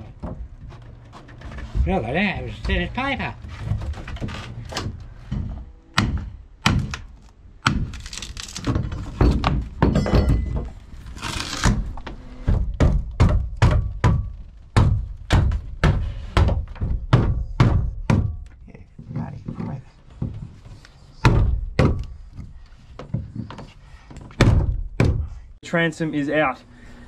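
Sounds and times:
tool thunking on timber: 8.7s - 10.8s, 24.3s - 25.4s.

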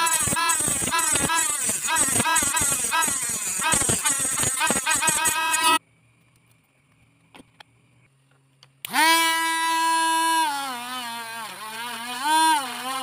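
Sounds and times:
small electric motor whining: 0.0s - 5.8s, 8.8s - 13.0s.

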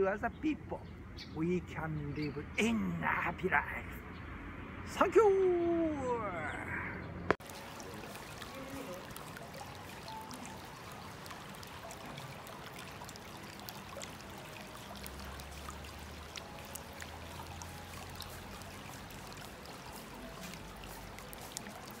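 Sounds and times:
fountain water trickling: 0.0s - 3.8s, 7.4s - 22.0s
water drips: 7.3s - 22.0s.

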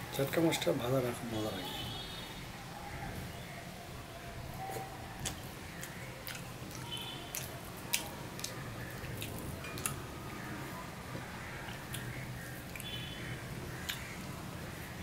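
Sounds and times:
sharp little clicks and smacks: 4.7s - 10.0s, 13.8s - 14.1s.

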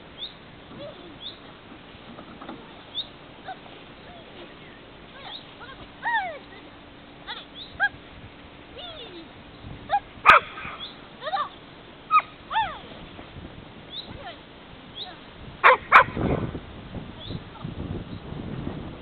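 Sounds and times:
dog whining and yipping: 12.1s - 12.8s.

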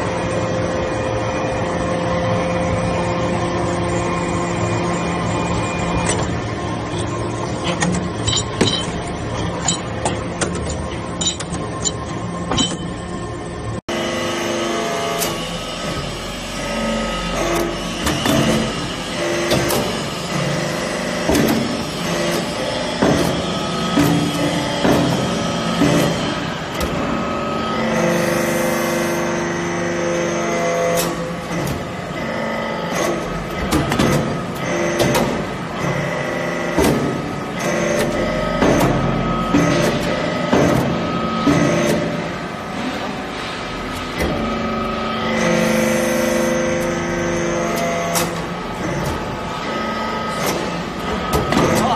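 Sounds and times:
hydraulic press motor hum: 0.0s - 51.9s.

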